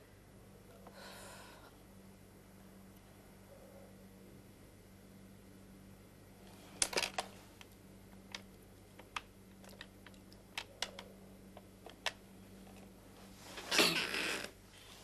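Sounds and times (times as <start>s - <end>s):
rustle: 12.4s - 15.0s.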